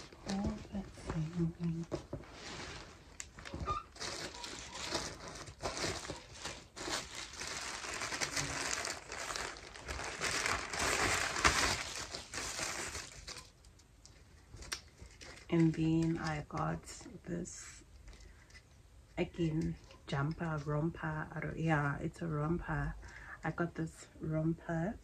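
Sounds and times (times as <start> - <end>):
packaging and clothing rustling: 0.0 - 13.6, 14.2 - 16.5.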